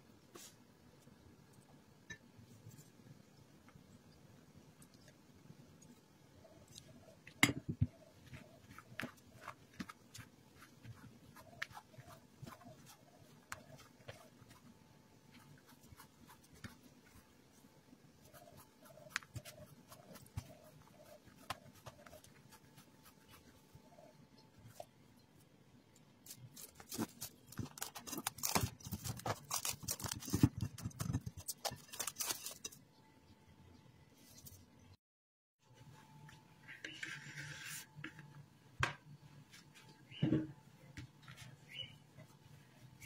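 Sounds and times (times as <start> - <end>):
hands kneading dough: 6.6 - 24.9.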